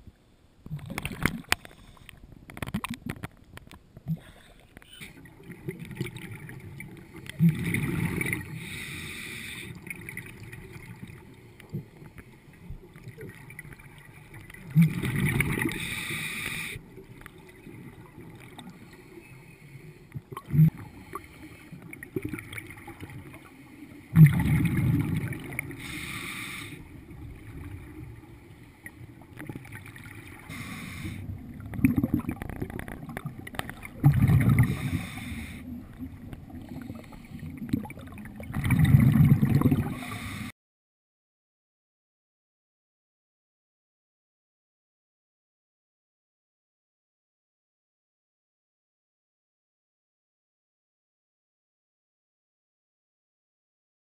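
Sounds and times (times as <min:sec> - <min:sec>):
exhaled bubbles gurgling: 0:00.6 - 0:03.3, 0:04.0 - 0:19.1, 0:20.2 - 0:40.4
regulator inhalation hiss: 0:08.6 - 0:09.8, 0:15.7 - 0:16.8, 0:25.8 - 0:26.9, 0:30.4 - 0:31.3, 0:34.7 - 0:35.7, 0:40.0 - 0:40.5.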